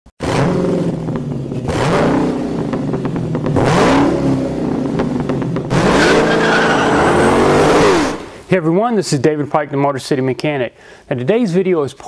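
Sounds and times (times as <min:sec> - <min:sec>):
car engine revving: 0:00.2 - 0:08.4.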